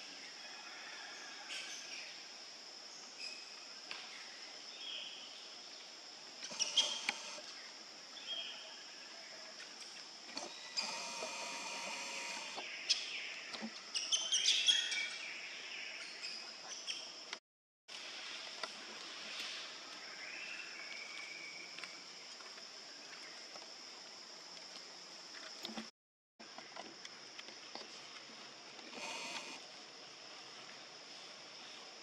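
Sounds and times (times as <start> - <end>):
high insect drone: 2.0 - 13.4, 26.4 - 32.0
steady buzzing noise: 10.8 - 12.6
bird chirps: 12.1 - 17.1.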